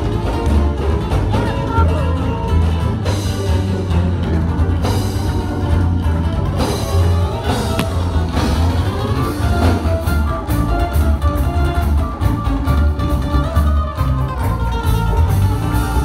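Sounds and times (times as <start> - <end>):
heavy steady bass: 6.8 - 10.7.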